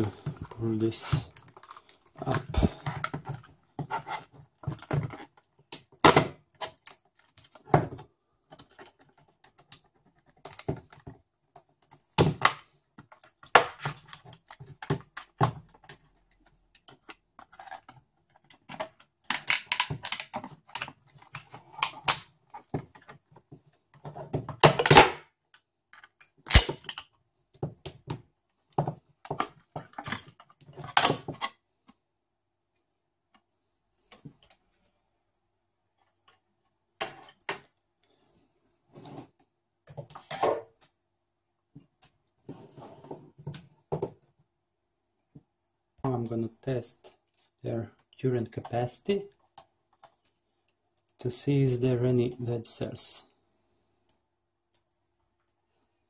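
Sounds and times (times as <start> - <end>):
sharp plastic snap: 26.5 - 27.0.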